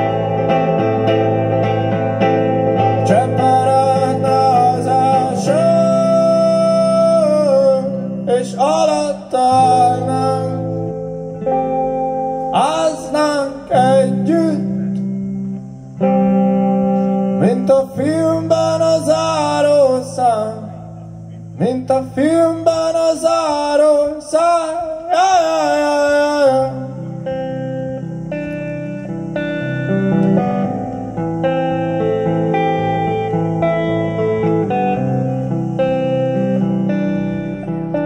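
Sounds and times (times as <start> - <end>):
electric guitar music: 0.0 - 38.0.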